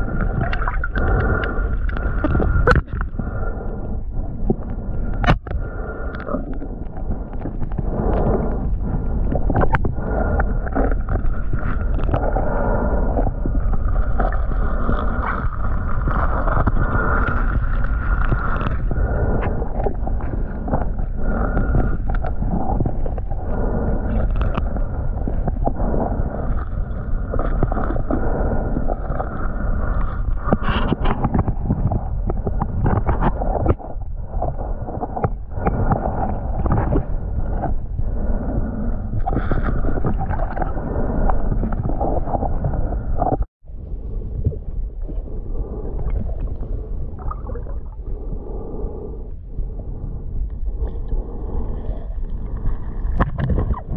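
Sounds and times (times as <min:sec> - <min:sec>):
underwater rushing and gurgling: 0:00.0 - 0:53.9.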